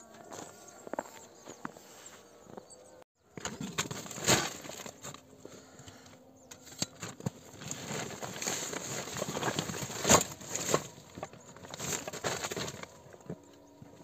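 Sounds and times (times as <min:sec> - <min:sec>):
backpack rustling and crinkling: 0:03.5 - 0:05.4, 0:06.7 - 0:14.0.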